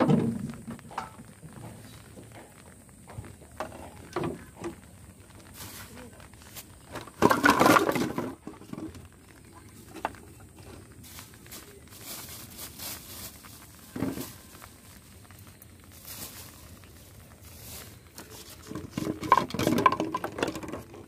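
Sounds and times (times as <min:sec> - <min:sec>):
plastic bottles clattering onto deck: 0:00.0 - 0:04.9, 0:06.4 - 0:11.6, 0:12.3 - 0:14.4, 0:17.6 - 0:21.0.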